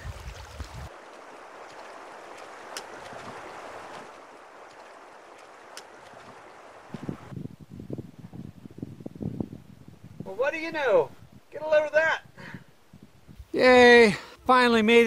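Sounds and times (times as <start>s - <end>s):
river water rushing: 0.0s - 7.3s
faint clicks: 1.7s - 3.1s, 4.6s - 6.3s.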